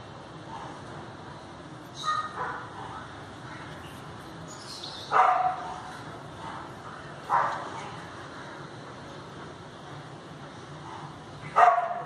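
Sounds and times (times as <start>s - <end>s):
dog barking: 2.0s - 2.7s, 5.1s - 5.8s, 7.3s - 7.7s, 11.5s - 12.0s.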